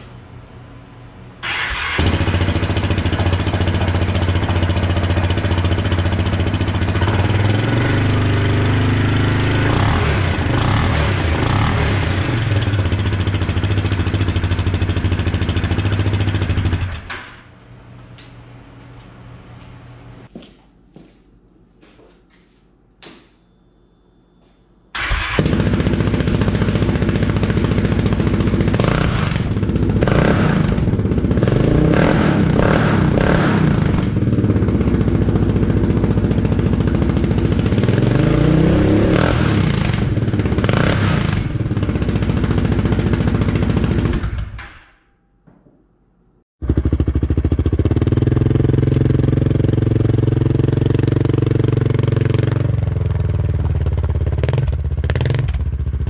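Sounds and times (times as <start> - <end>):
atv engine revving: 1.4 - 17.1, 25.0 - 44.6, 46.6 - 56.0.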